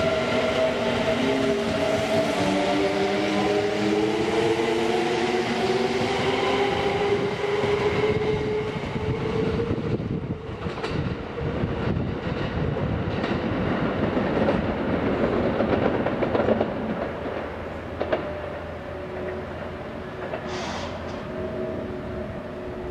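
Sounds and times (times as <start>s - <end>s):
train wheels clicking over rail joints: 10.6s - 21.3s.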